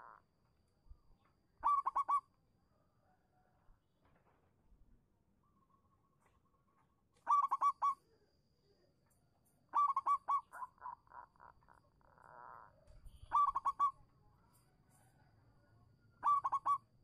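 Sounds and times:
dove cooing: 0:01.6 - 0:02.2, 0:07.3 - 0:08.0, 0:09.7 - 0:14.0, 0:16.2 - 0:16.9.

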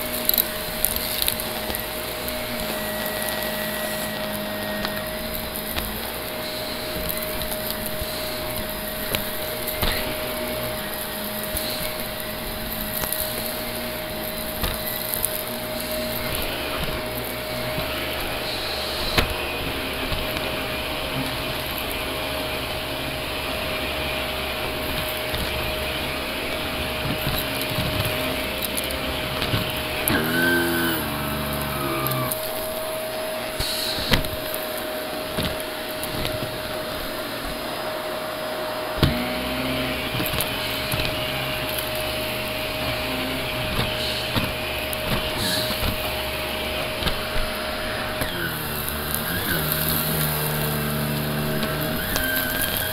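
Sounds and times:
debris clicking through vacuum: 0:00.0 - 0:52.9
upright vacuum cleaner running: 0:00.0 - 0:52.9.

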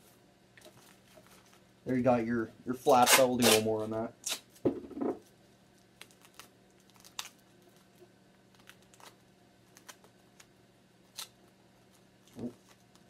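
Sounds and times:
duct tape crinkling: 0:05.7 - 0:13.0.

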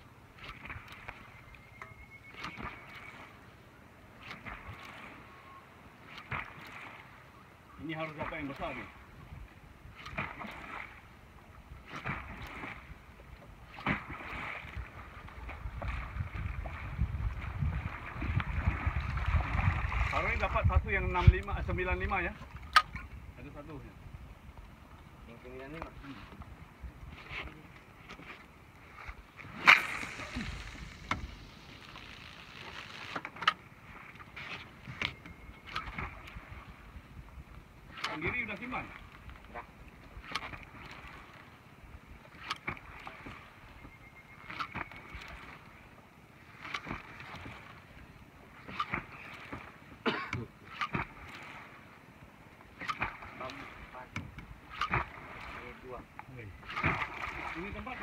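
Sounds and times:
wind rumbling on microphone: 0:14.0 - 0:28.2, 0:28.8 - 0:33.2
fishing rod swish: 0:27.2 - 0:33.5, 0:56.6 - 0:57.5
lure jerked across water: 0:27.2 - 0:33.6, 0:40.2 - 0:41.2, 0:48.6 - 0:49.2, 0:50.7 - 0:51.4, 0:54.7 - 0:55.6, 0:56.6 - 0:57.5
line hissing off reel: 0:29.4 - 0:33.4
lure splashing pops on water: 0:29.5 - 0:33.6
reel click: 0:29.6 - 0:36.4, 0:37.9 - 0:41.0, 0:42.3 - 0:43.1, 0:43.8 - 0:45.6, 0:50.6 - 0:51.1, 0:52.8 - 0:55.1.

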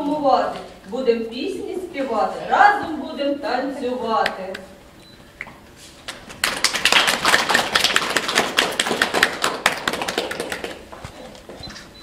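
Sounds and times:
audience applauding: 0:06.1 - 0:11.1.

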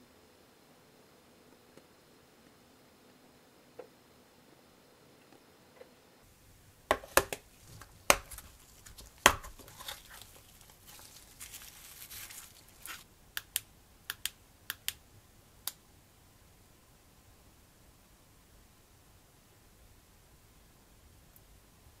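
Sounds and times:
soft rustling: 0:07.1 - 0:13.1
plastic clicks and snaps: 0:13.4 - 0:15.0
small light clicks: 0:13.4 - 0:15.0.

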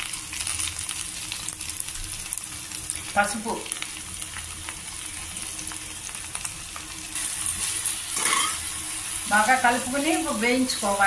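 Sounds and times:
okra sizzling in hot oil: 0:00.0 - 0:11.0.

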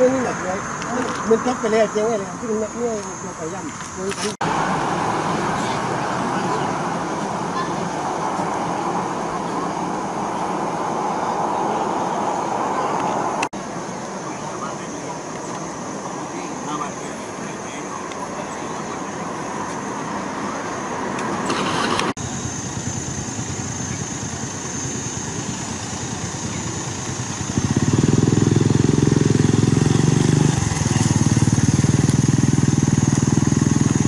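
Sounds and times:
traffic background: 0:00.0 - 0:34.0
vehicle engine idling: 0:21.4 - 0:34.0.

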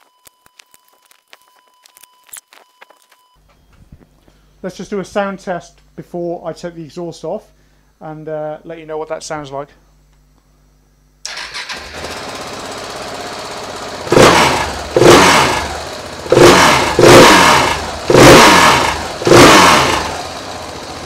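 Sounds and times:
motorcycle engine starting and idling: 0:11.2 - 0:21.0
motorcycle engine revving: 0:11.3 - 0:21.0.

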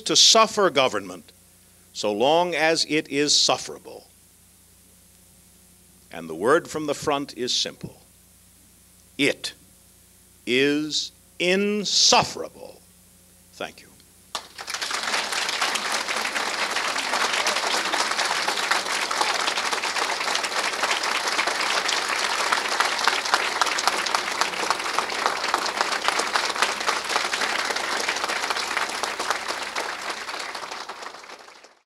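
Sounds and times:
large audience applauding: 0:14.3 - 0:31.8.

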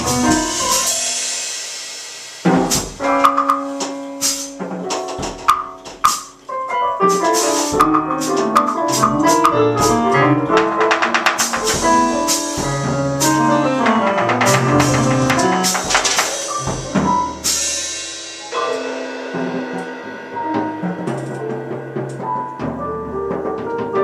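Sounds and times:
digital piano: 0:00.0 - 0:01.5, 0:02.5 - 0:24.0
busy drumming with cymbals: 0:00.0 - 0:24.0
cymbal crash: 0:15.6 - 0:22.2.

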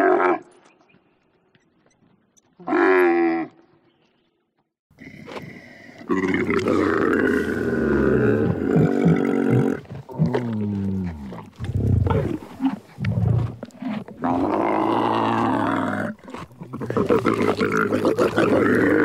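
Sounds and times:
camel calling: 0:02.6 - 0:03.7
camel grunting: 0:06.1 - 0:19.0.

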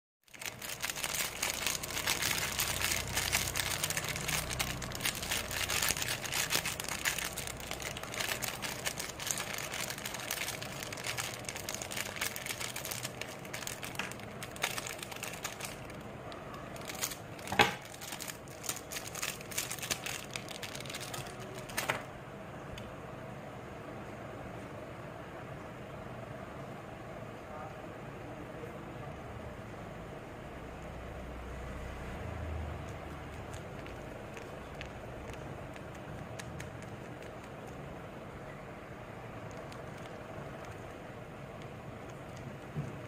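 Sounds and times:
plastic wrapper crinkling: 0:00.2 - 0:22.1, 0:32.9 - 0:37.8, 0:38.5 - 0:43.0.

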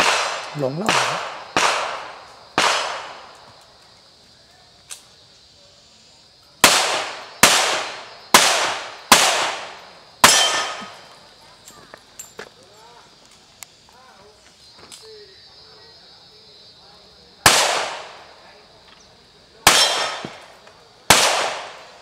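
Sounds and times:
handgun shots with echo: 0:00.0 - 0:03.2, 0:06.6 - 0:11.0, 0:19.7 - 0:20.5, 0:21.1 - 0:21.9.

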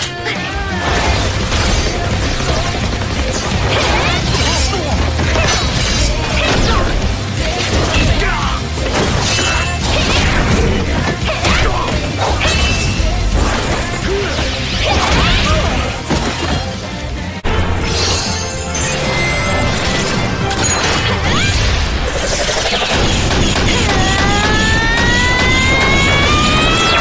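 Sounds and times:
loud battle music: 0:00.0 - 0:27.0.

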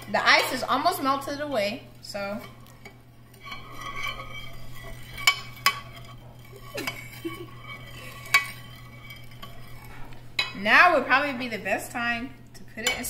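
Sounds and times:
spoon scraping glass dish: 0:02.2 - 0:10.6.

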